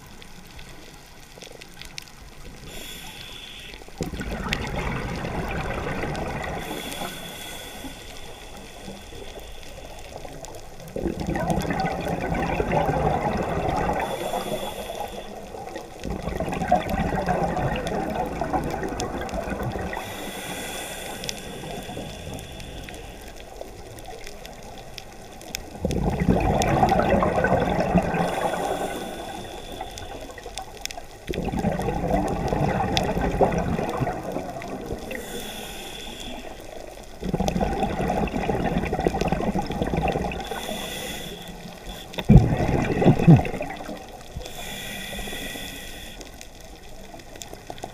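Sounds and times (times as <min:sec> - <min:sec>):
regulator inhale hiss: 0:02.5 - 0:04.0, 0:06.4 - 0:10.7, 0:13.8 - 0:16.0, 0:19.9 - 0:24.5, 0:28.0 - 0:30.7, 0:34.8 - 0:37.2, 0:40.3 - 0:42.3, 0:44.3 - 0:47.9
exhaled bubbles rushing: 0:04.0 - 0:06.9, 0:10.2 - 0:14.5, 0:15.4 - 0:20.2, 0:25.7 - 0:29.6, 0:31.3 - 0:35.2, 0:37.1 - 0:40.9, 0:42.2 - 0:44.5.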